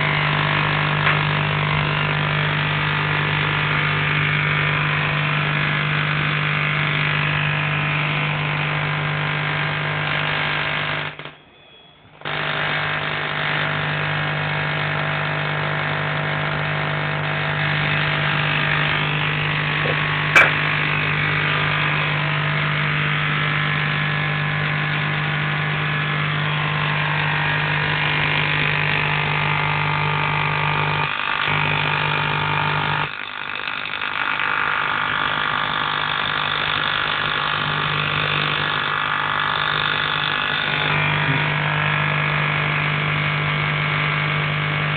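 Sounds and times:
sharp spark crack: 0:00.0 - 0:11.4, 0:12.2 - 0:29.4
tesla coil buzzing: 0:00.0 - 0:44.9.

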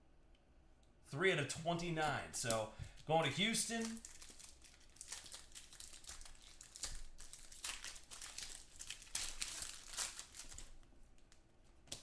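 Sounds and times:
wrapper and cards crinkling: 0:02.4 - 0:12.0.

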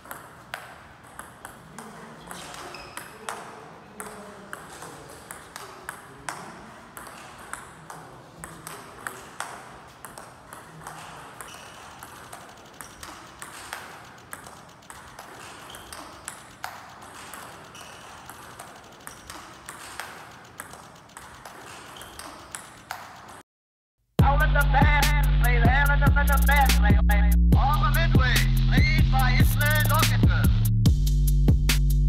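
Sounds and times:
shoes squeaking on sports floor: 0:00.0 - 0:23.4
table tennis ball clicking: 0:00.0 - 0:23.4.

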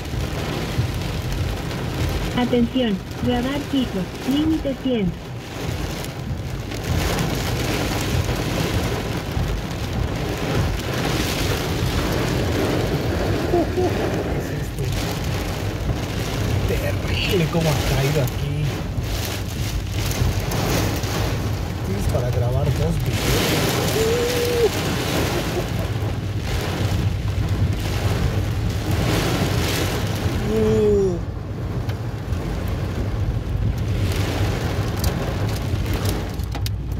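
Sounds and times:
heavy rain drumming on car roof: 0:00.0 - 0:36.9
low rumble: 0:00.0 - 0:36.9
windshield wipers swishing: 0:00.0 - 0:36.9.

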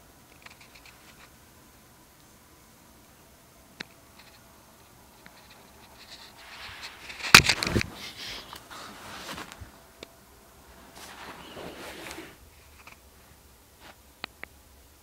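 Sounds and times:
rustling and scraping: 0:05.2 - 0:09.8, 0:10.7 - 0:14.0.

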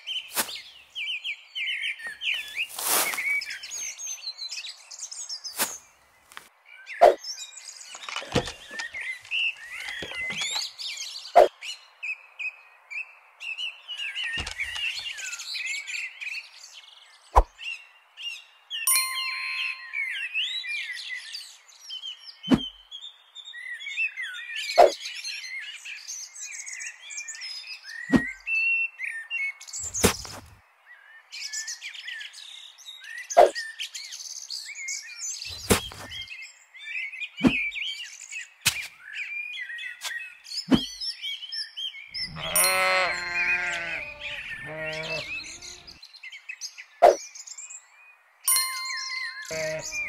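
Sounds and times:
songbirds chirping: 0:00.0 - 0:50.0
drawn-out animal call: 0:42.2 - 0:46.0, 0:49.4 - 0:50.0.

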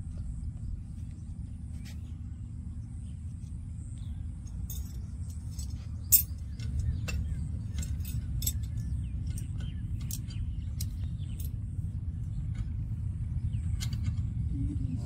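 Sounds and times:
steady low rumble: 0:00.0 - 0:15.0
metallic clinks of pliers and hardware: 0:04.7 - 0:11.6.

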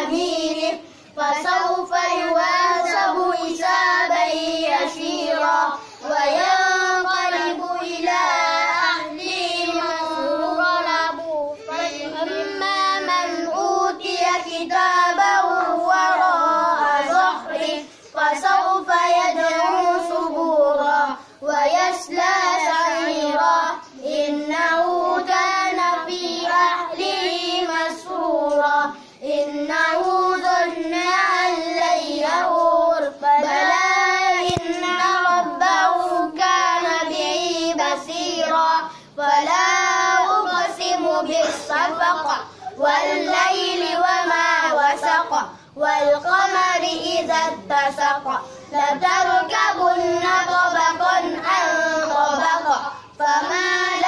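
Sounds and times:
boy chanting recitation: 0:00.0 - 0:54.0.

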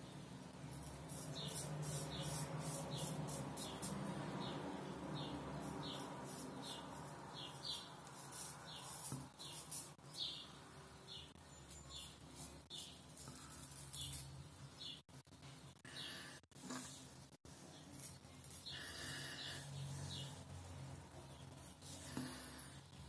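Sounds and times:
razor scraping stubble: 0:00.7 - 0:04.0, 0:05.6 - 0:10.4, 0:11.7 - 0:14.4.

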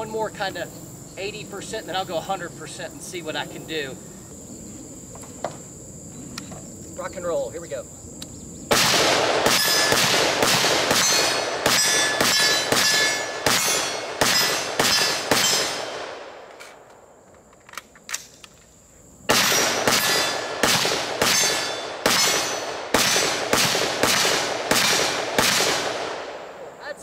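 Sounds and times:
rifle gunshots: 0:08.7 - 0:16.5, 0:19.3 - 0:26.6
bullets ringing on steel targets: 0:09.5 - 0:10.1, 0:10.9 - 0:15.9, 0:21.2 - 0:23.4.

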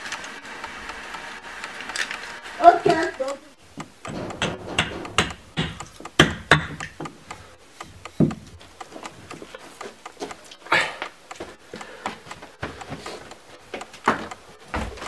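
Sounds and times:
hatchet chopping wood: 0:03.8 - 0:09.4.

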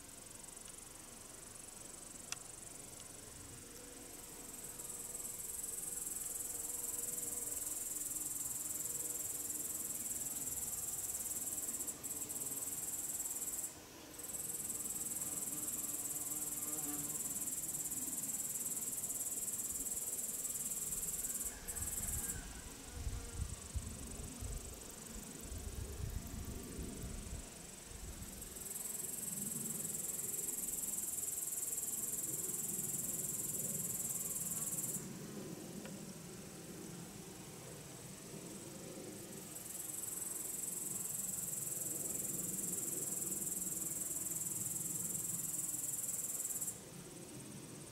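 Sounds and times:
insects stridulating: 0:00.0 - 0:47.9.

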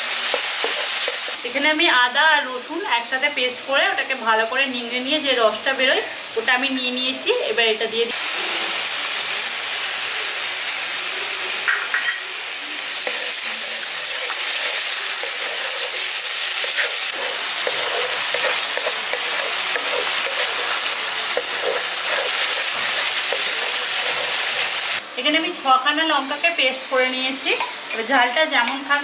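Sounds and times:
paste sizzling in hot oil: 0:00.0 - 0:01.6, 0:07.7 - 0:25.0
spatula scraping pan: 0:13.0 - 0:25.0.

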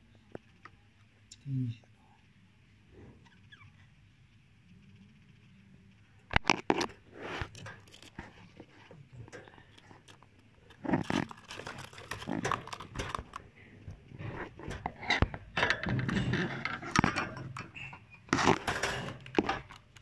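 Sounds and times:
knocks and scrapes on wire cage: 0:06.4 - 0:20.0.

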